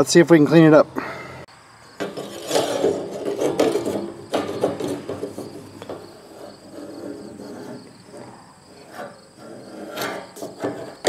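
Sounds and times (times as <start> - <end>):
hand scraping on metal: 2.0 - 11.0.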